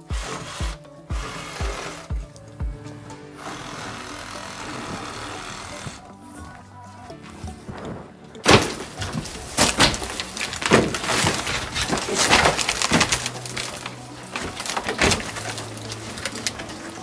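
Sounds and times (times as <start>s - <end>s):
knocks and creaks of wooden framing: 7.3s - 17.0s.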